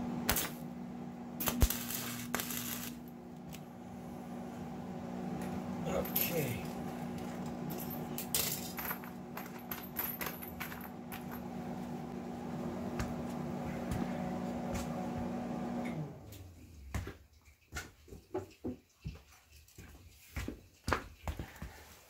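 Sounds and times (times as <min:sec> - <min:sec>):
welding machine humming: 0:00.0 - 0:16.4
metal chain links clinking: 0:07.7 - 0:11.4.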